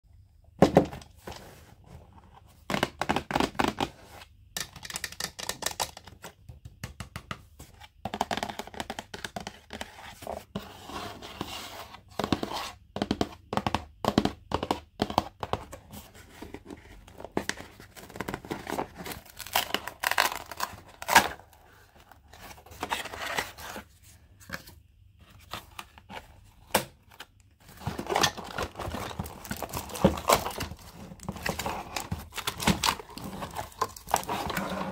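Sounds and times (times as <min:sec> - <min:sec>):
plastic packaging crinkling and tearing: 0:18.0 - 0:21.6, 0:27.7 - 0:34.9.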